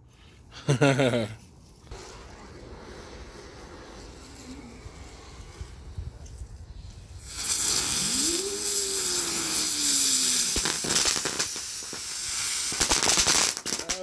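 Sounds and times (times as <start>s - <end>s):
spinning firework whine: 0.7s - 14.0s
fuse burning: 1.0s - 14.0s
firework hissing sparks: 1.8s - 14.0s
sharp crackling pops: 6.2s - 14.0s.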